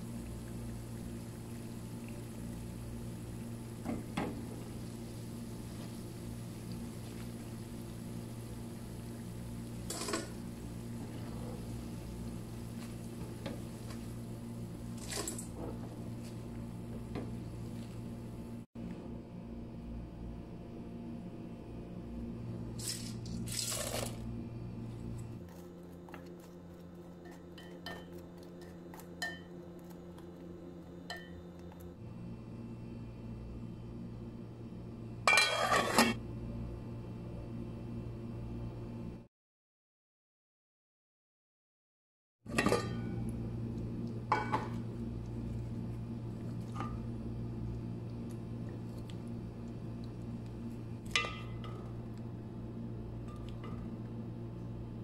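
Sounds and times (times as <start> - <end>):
oil sizzling: 0.0 - 18.6, 42.6 - 52.4
spoon stirring in metal pot: 35.3 - 36.2
low hum: 42.6 - 55.0.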